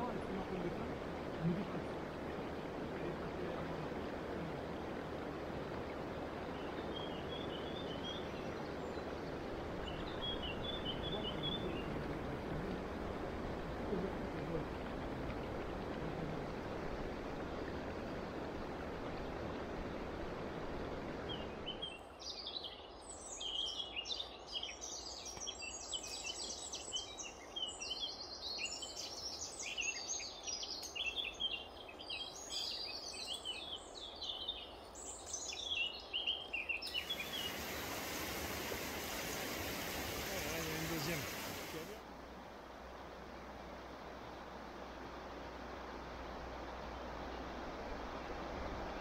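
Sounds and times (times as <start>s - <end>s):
river water rushing: 0.0s - 21.7s, 36.8s - 49.0s
songbirds chirping: 0.0s - 48.3s.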